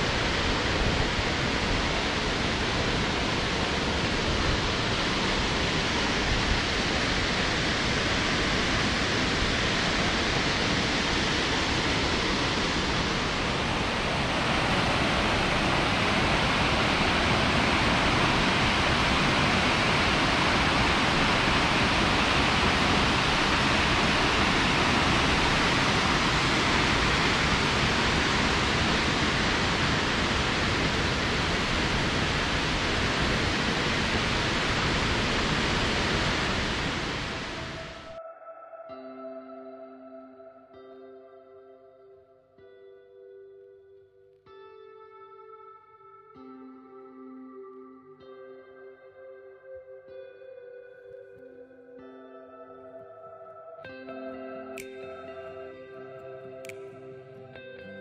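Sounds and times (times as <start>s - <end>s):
waterfall and stream rushing: 0.0s - 38.2s.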